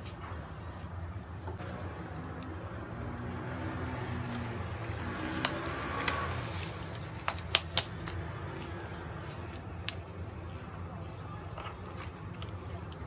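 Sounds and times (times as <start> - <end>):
glove snapping: 6.8 - 10.1.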